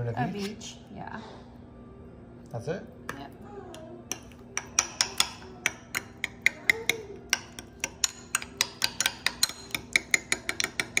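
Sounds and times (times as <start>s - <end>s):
metal spoon clinking ceramic bowl: 4.1s - 11.0s.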